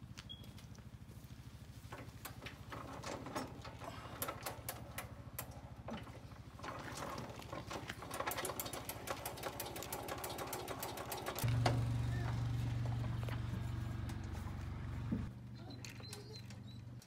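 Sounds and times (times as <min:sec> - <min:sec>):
metal clicks and rattles: 0:01.9 - 0:12.0.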